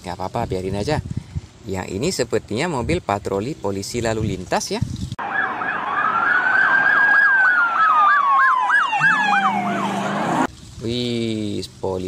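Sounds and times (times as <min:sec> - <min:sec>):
police siren yelp and wail: 0:05.2 - 0:10.5.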